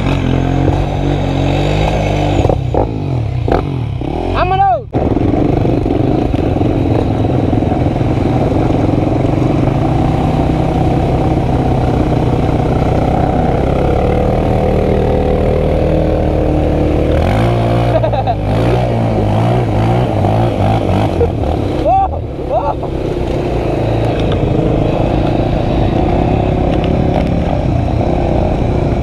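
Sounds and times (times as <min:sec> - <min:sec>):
motorcycle engine revving: 0:00.0 - 0:29.0.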